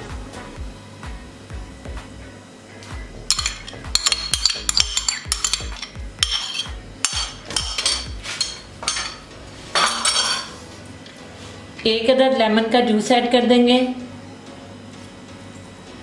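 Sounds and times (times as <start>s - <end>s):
background music with low beat: 0.0s - 11.9s, 14.0s - 16.0s
spoon scraping a container: 3.3s - 10.6s.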